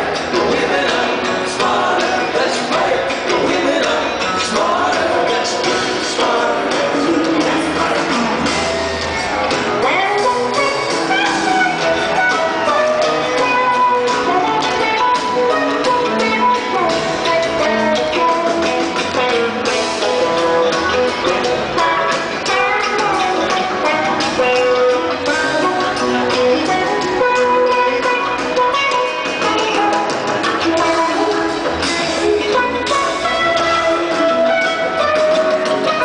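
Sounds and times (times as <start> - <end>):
live rock band playing: 0.0 - 36.0.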